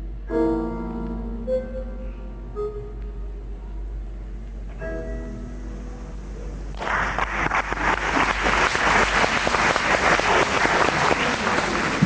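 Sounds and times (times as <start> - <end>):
audience applauding: 6.7 - 12.0.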